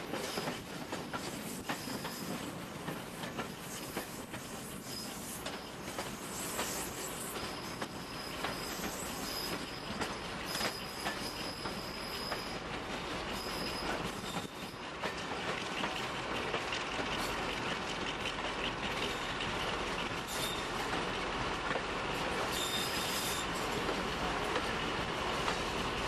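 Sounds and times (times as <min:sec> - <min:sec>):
diesel locomotive engine: 0:00.0 - 0:26.0
train wheels on rails: 0:00.0 - 0:26.0
high wheel squeals: 0:01.6 - 0:02.5, 0:04.7 - 0:14.9, 0:20.2 - 0:20.8, 0:22.4 - 0:23.6.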